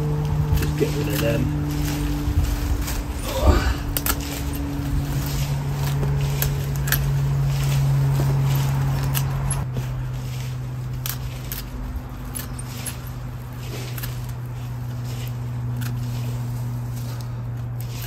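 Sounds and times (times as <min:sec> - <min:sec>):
pruning shears snipping stems: 0:00.0 - 0:18.0
steady low hum: 0:00.0 - 0:18.0.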